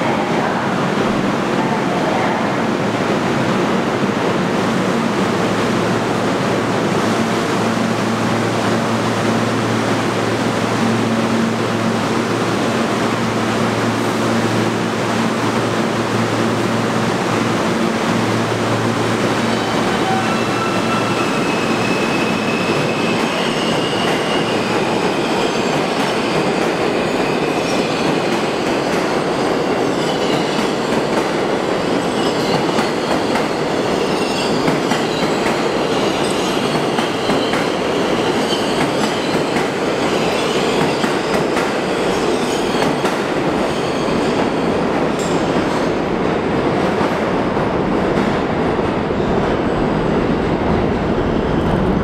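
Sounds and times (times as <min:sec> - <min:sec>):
train wheels rumbling on rails: 0:00.0 - 0:52.0
high wheel squeals: 0:19.4 - 0:28.2.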